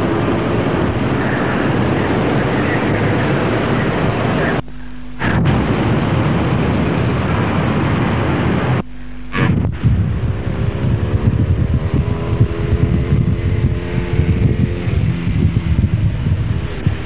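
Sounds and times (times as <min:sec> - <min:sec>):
motorcycle engines running: 0:00.0 - 0:17.0
wind buffeting microphone: 0:05.2 - 0:08.8, 0:09.4 - 0:17.0.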